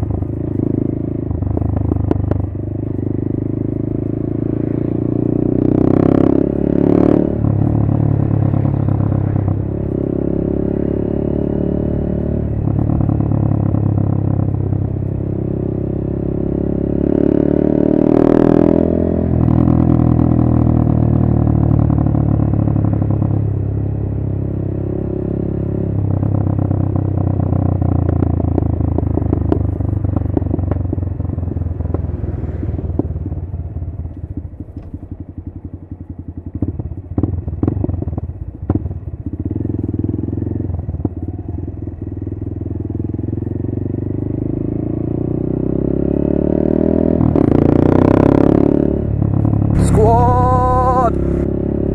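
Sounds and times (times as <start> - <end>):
motorcycle engine revving: 0.0 - 23.6, 36.4 - 51.9
exhaust crackles: 49.5 - 51.5.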